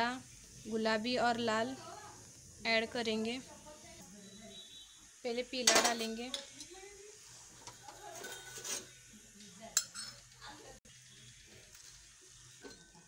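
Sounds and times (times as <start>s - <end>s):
spoon scraping steel pot: 7.6s - 9.0s.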